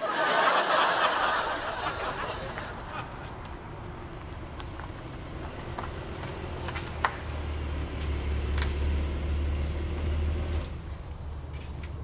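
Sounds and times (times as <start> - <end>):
car engine running: 2.7 - 11.5.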